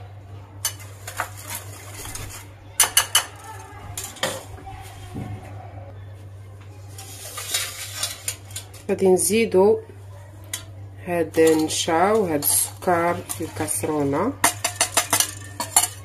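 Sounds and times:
whisk clinking against glass bowl: 0:14.4 - 0:16.0.

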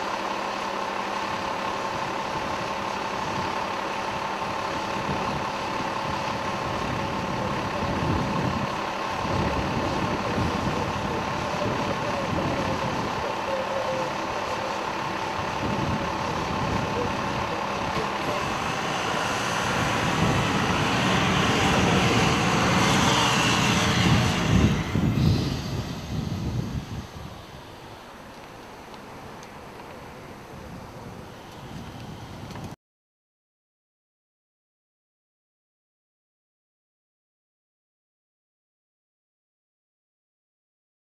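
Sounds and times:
fire engine diesel idling: 0:00.0 - 0:32.8.

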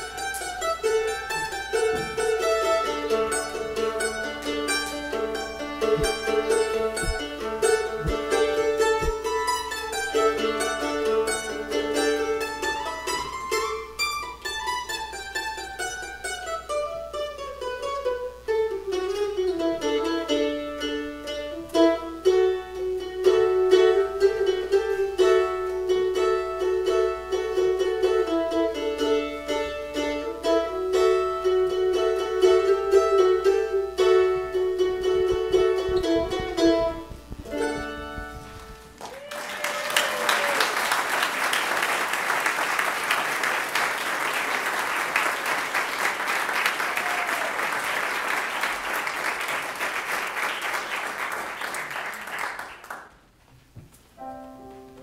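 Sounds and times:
mandolin picked in a reverberant room: 0:00.0 - 0:39.0, 0:53.0 - 0:55.0.

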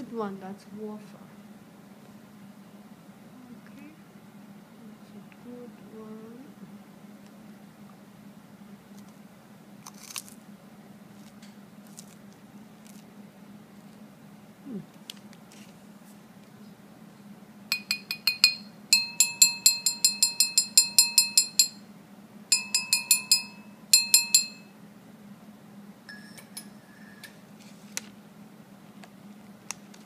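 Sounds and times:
spoon clinking against china cup: 0:17.7 - 0:21.8, 0:22.5 - 0:24.7.

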